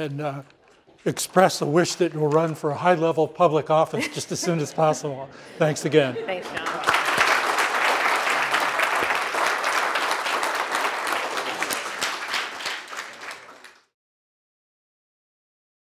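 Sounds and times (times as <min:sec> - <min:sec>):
audience applauding: 0:05.9 - 0:13.9.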